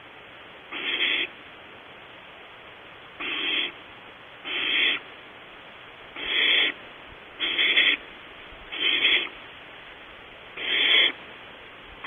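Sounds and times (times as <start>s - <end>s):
owl chick hissing begging calls: 0.7s - 1.4s, 3.2s - 3.8s, 4.4s - 5.1s, 6.1s - 6.8s, 7.4s - 8.1s, 8.7s - 9.4s, 10.6s - 11.2s.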